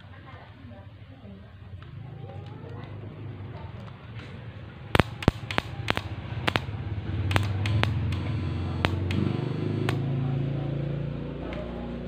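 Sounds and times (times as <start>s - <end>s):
transformer humming: 4.6s - 12.0s
alligator clips clicking: 5.0s - 6.7s, 7.3s - 10.0s.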